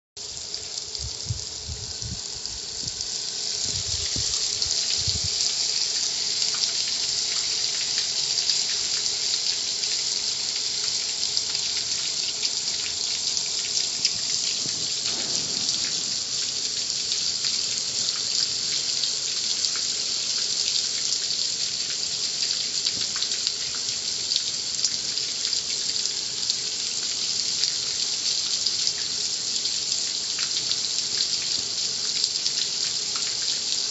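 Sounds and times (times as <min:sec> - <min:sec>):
water spraying hiss: 0:00.2 - 0:21.5
low bumps: 0:14.6 - 0:17.0.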